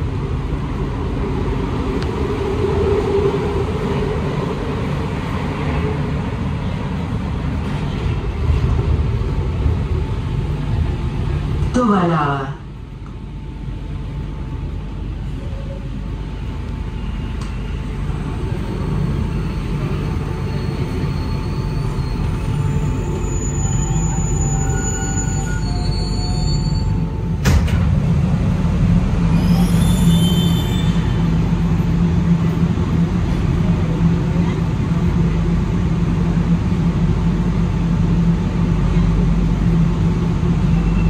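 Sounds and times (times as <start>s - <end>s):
metro train rumbling: 0.0s - 41.0s
train doors sliding open: 16.7s - 31.3s
high whines and squeals: 16.9s - 27.3s, 28.8s - 31.5s.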